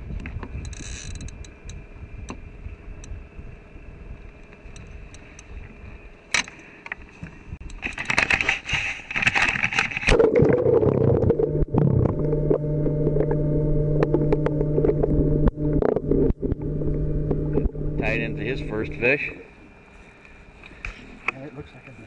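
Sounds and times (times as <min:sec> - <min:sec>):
small clicks: 0:00.2 - 0:02.4
muffled underwater hum: 0:07.3 - 0:20.9
splashing and bubbling: 0:10.1 - 0:13.4.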